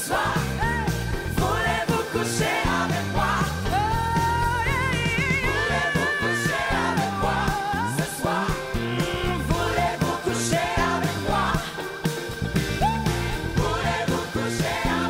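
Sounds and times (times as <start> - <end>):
woman singing lead vocal: 0.0 - 11.9
backing singers: 0.0 - 15.0
band with drums bass and keyboards: 0.0 - 15.0.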